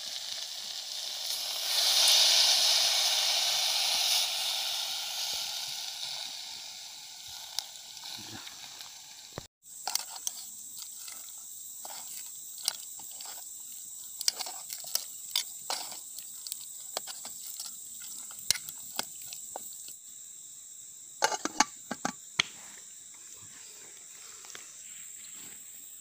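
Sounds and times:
high insect drone: 0:00.0 - 0:26.0
metal spoon scraping a pot: 0:09.8 - 0:13.4, 0:14.2 - 0:19.4, 0:21.2 - 0:22.2
pot lid clanking: 0:21.2 - 0:22.2.

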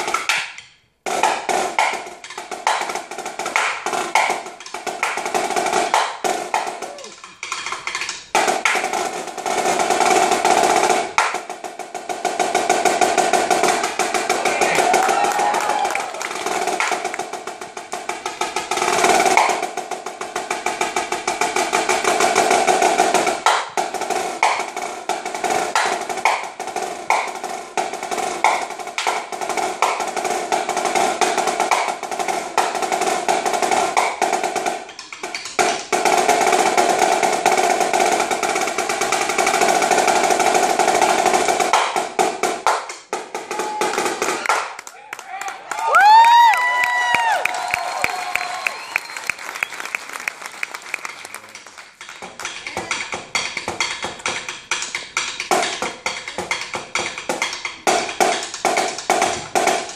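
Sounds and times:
marching snare drum rolls: 0:01.0 - 0:44.9, 0:57.2 - 0:59.9.

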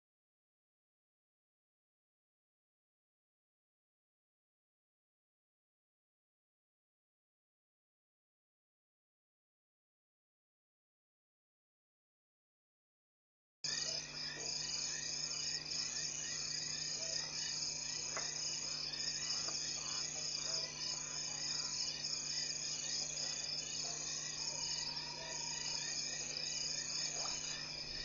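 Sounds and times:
faint low hum: 0:13.7 - 0:28.0
night insects chirring: 0:13.7 - 0:28.0.

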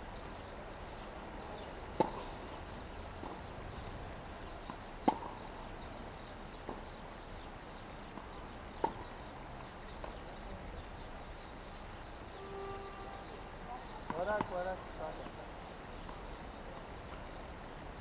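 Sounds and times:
tennis ball bouncing: 0:02.0 - 0:02.4, 0:03.2 - 0:03.4, 0:04.6 - 0:05.5, 0:08.1 - 0:09.1, 0:14.0 - 0:15.4, 0:16.0 - 0:16.3.

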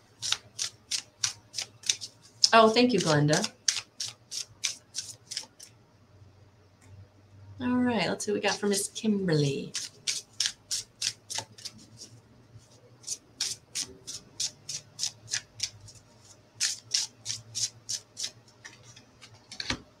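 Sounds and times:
faint low hum: 0:00.0 - 0:20.0
cards being shuffled: 0:00.1 - 0:05.7, 0:09.7 - 0:19.9.

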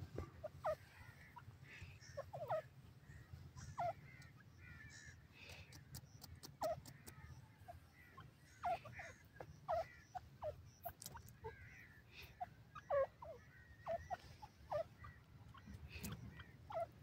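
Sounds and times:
faint chirps: 0:00.4 - 0:17.0
sharp clicks: 0:05.5 - 0:07.4.

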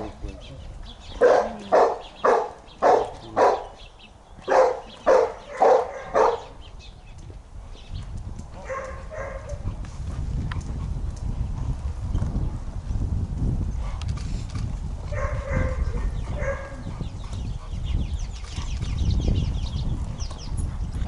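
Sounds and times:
dog barking: 0:01.2 - 0:03.8, 0:04.5 - 0:06.5, 0:08.6 - 0:09.6, 0:15.1 - 0:16.9.

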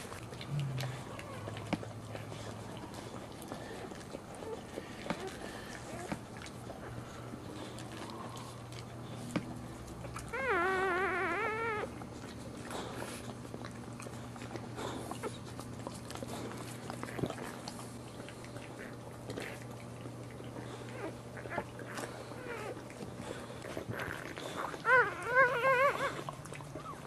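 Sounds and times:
faint puppy squeaks: 0:10.1 - 0:13.3, 0:20.5 - 0:27.0
puppy crying: 0:10.2 - 0:12.0, 0:20.6 - 0:23.0, 0:23.7 - 0:27.0.

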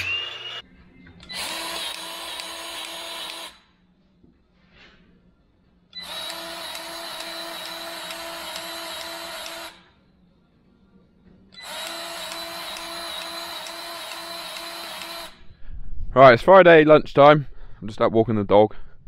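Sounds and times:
grease gun motor whine pulsing: 0:06.0 - 0:09.8, 0:11.6 - 0:15.4.

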